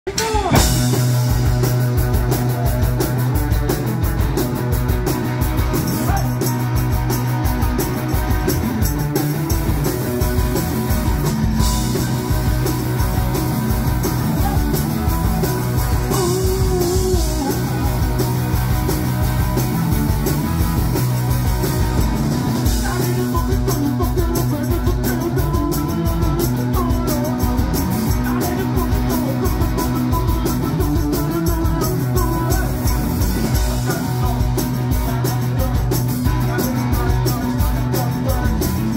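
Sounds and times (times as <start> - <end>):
punk rock band playing: 0.0 - 38.9
singer shouting vocals: 0.1 - 1.2, 5.9 - 6.5, 14.2 - 18.2.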